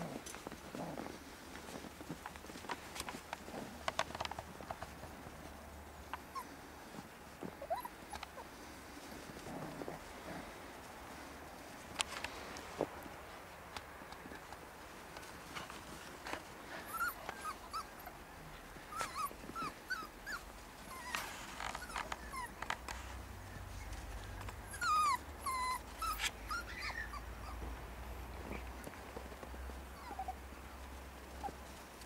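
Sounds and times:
puppies yipping and whining: 0:06.1 - 0:06.6, 0:07.5 - 0:08.5, 0:16.8 - 0:18.2, 0:18.8 - 0:22.8, 0:24.6 - 0:27.7, 0:30.0 - 0:30.4.

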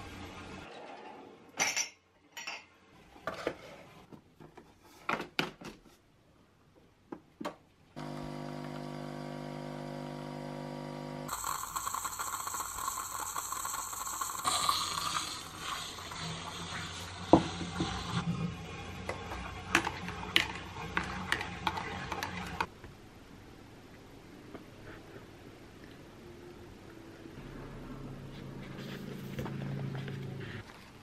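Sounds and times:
coffee machine humming: 0:08.0 - 0:18.2
coffee machine hissing: 0:08.0 - 0:20.8.

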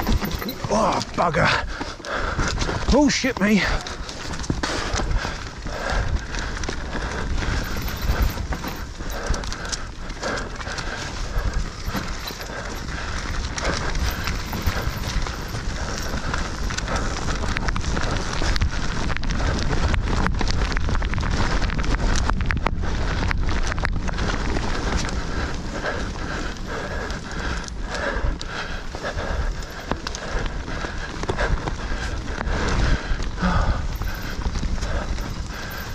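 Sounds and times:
tyres rumbling on dirt: 0:00.0 - 0:28.0
bike rattling and knocking: 0:00.0 - 0:35.9
wind: 0:00.0 - 0:35.9.

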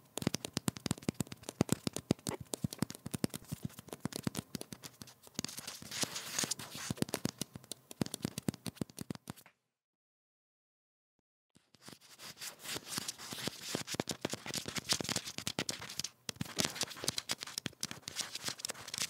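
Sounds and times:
rat scratching and scrabbling: 0:11.9 - 0:19.0.

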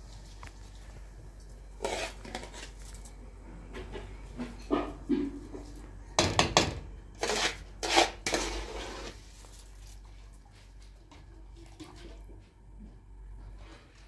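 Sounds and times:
pots and utensils clattering: 0:03.8 - 0:09.1.

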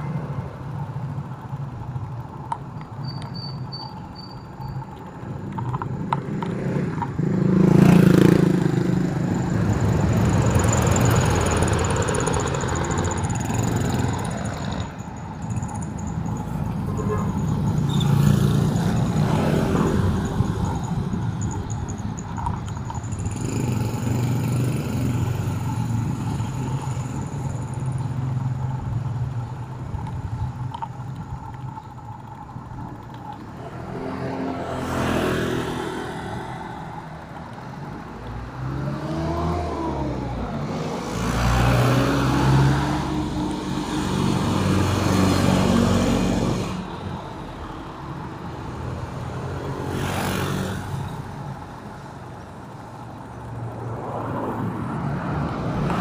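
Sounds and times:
engines humming: 0:00.0 - 0:56.0
vehicles passing: 0:00.0 - 0:56.0
engine revving: 0:38.4 - 0:46.9.

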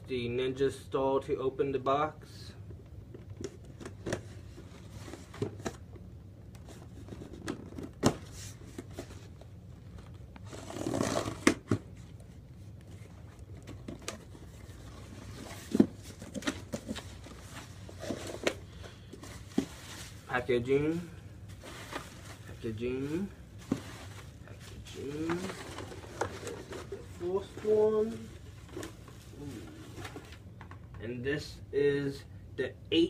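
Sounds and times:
packing tape tearing: 0:10.5 - 0:11.7.

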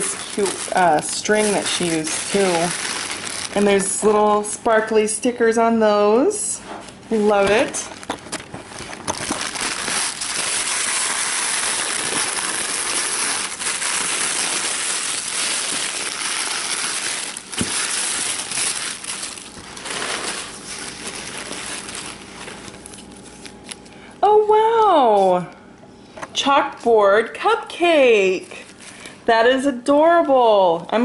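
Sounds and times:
tissue paper crinkling: 0:00.0 - 0:04.1, 0:07.1 - 0:24.0.

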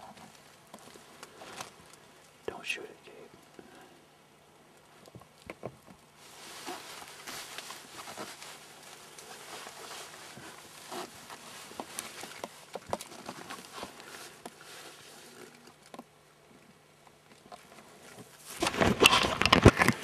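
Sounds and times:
fabric rustling with crackles: 0:04.9 - 0:20.0.

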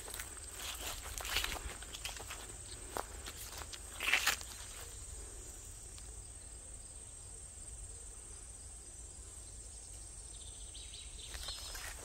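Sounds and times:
footsteps rustling through grass: 0:00.0 - 0:05.7, 0:11.3 - 0:12.0
insects droning: 0:00.0 - 0:12.0.

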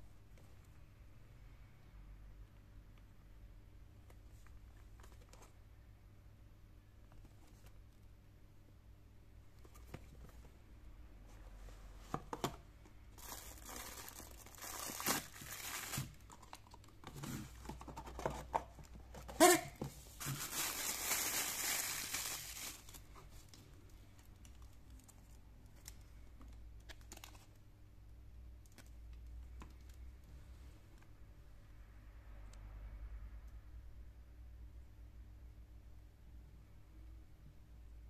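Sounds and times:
plastic bag crinkling: 0:13.2 - 0:17.4, 0:20.2 - 0:23.5.

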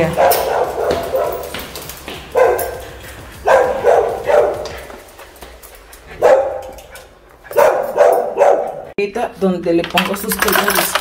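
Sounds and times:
small dog barking: 0:00.0 - 0:01.6, 0:02.3 - 0:02.8, 0:03.4 - 0:04.9, 0:06.2 - 0:06.8, 0:07.5 - 0:08.9.

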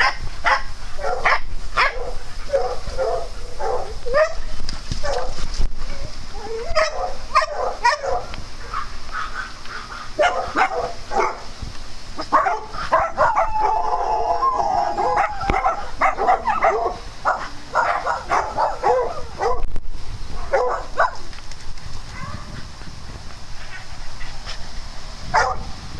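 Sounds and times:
dogs barking and yipping: 0:00.0 - 0:11.5, 0:12.2 - 0:19.7, 0:20.3 - 0:21.4, 0:25.3 - 0:25.7.

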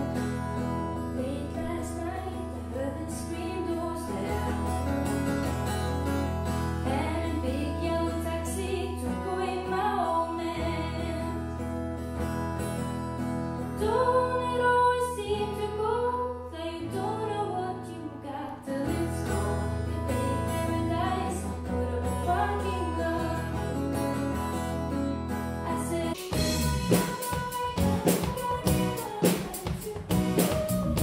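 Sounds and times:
acoustic guitar: 0:00.0 - 0:31.0
woman singing: 0:01.0 - 0:05.1, 0:06.8 - 0:11.7, 0:13.8 - 0:24.2, 0:25.6 - 0:31.0.

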